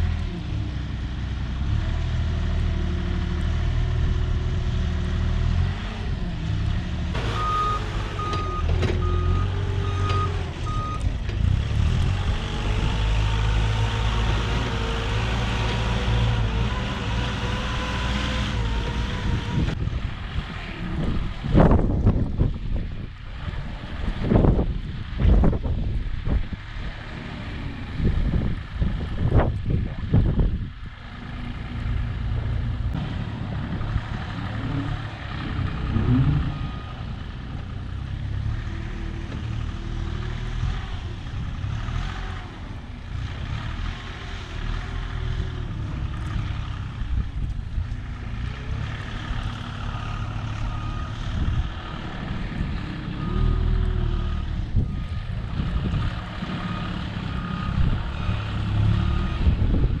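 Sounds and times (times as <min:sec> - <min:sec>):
vehicle engine revving: 0:00.0 - 1:00.0
reversing beeper beeps: 0:07.3 - 0:11.0, 0:53.1 - 0:55.3.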